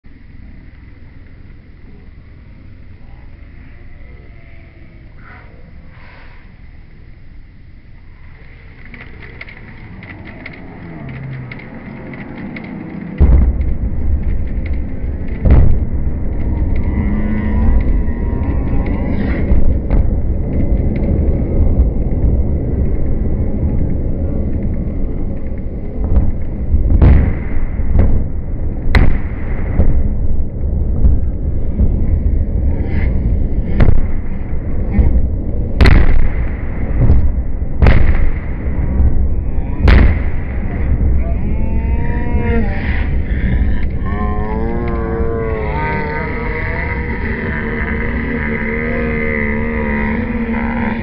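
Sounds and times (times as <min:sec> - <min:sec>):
low rumble of collapsing bridge: 0:00.0 - 0:51.0
heavy explosion booms: 0:13.2 - 0:51.0.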